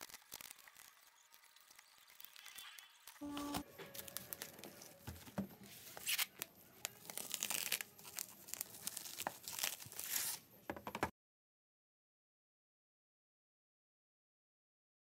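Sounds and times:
bubble wrap crinkling: 0:00.0 - 0:10.6
cardboard box ripping: 0:05.8 - 0:10.4.

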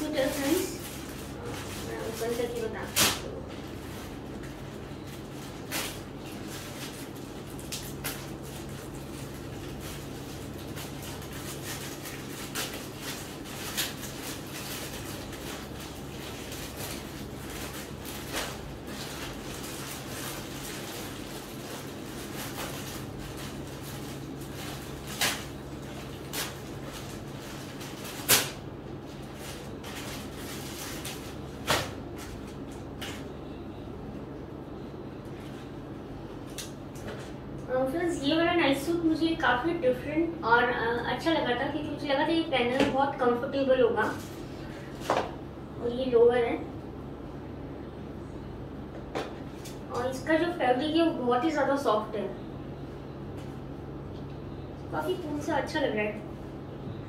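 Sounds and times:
plastic packaging crinkling: 0:00.0 - 0:33.3
steady low hum: 0:00.0 - 0:57.0.

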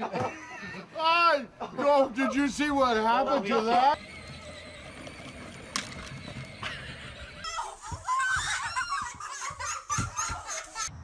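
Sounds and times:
people laughing and screaming: 0:03.4 - 0:11.0.

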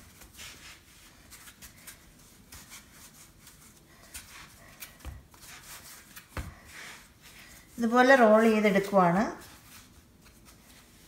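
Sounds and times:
hands rubbing dough on board: 0:00.0 - 0:11.0.

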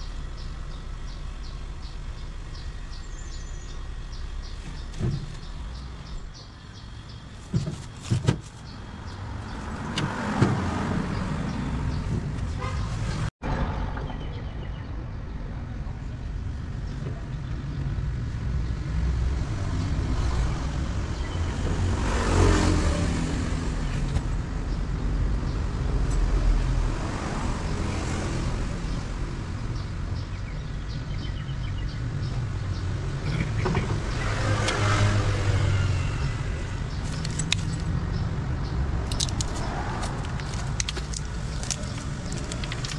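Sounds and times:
road traffic rumble: 0:00.0 - 0:42.9.

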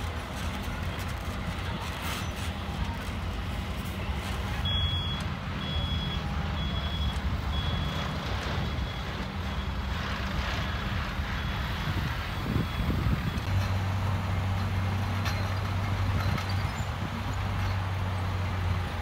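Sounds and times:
diesel engine running: 0:00.0 - 0:19.0
reverse alarm beeping: 0:04.6 - 0:08.1.

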